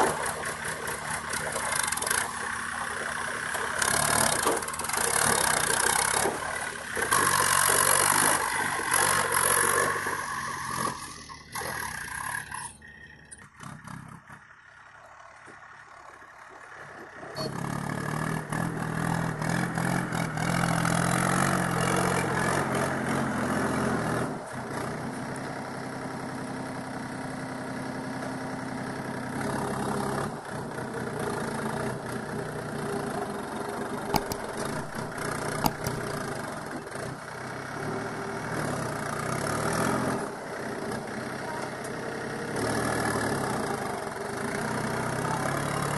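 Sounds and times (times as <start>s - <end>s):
tractor diesel engine running: 0.0s - 45.9s
sharp clicks: 34.2s - 36.2s.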